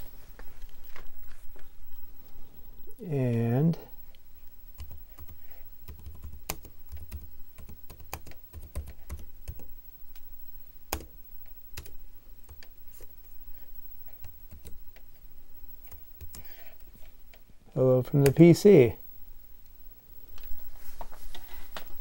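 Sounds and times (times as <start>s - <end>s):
laptop keyboard typing: 4.8s - 9.7s, 10.9s - 11.2s, 11.8s - 12.8s, 14.1s - 15.1s, 15.8s - 16.6s.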